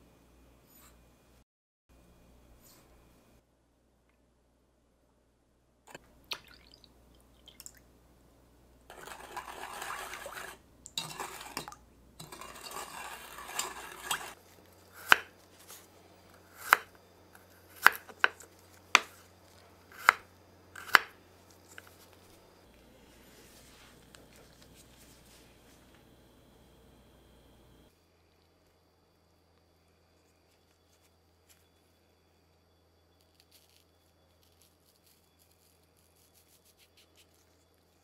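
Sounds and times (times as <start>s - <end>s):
spoon stirring in a bowl: 8.9s - 14.4s
knife chopping on cutting board: 15.0s - 15.4s, 16.6s - 16.9s, 17.8s - 19.2s, 19.9s - 21.2s.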